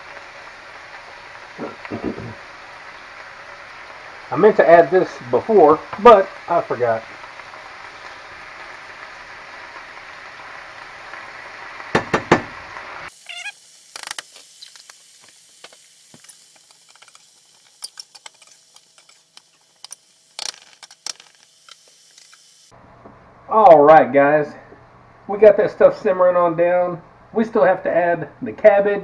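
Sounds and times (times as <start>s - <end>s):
vegetables sizzling in oil: 0.0s - 22.8s
fork scraping in pan: 16.2s - 20.6s.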